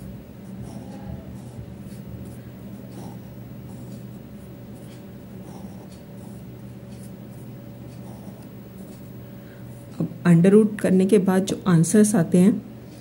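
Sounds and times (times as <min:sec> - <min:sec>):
steady low hum: 0:00.0 - 0:13.0
ballpoint pen scratching on paper: 0:00.4 - 0:10.1.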